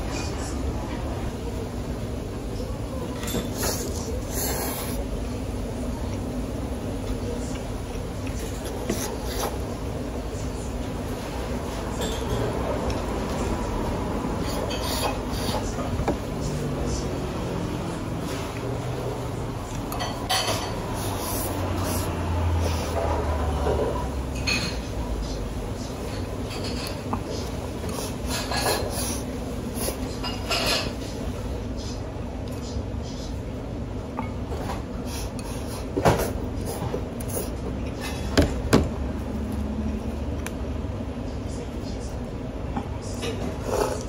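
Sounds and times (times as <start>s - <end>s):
tableware clinking: 19.9s - 20.8s, 24.3s - 24.9s, 30.2s - 31.0s.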